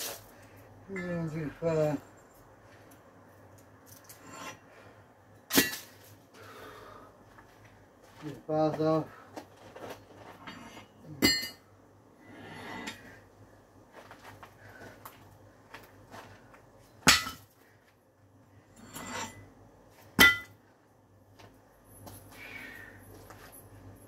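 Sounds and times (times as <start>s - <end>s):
scraping and shuffling: 7.2s - 11.0s, 12.3s - 17.0s.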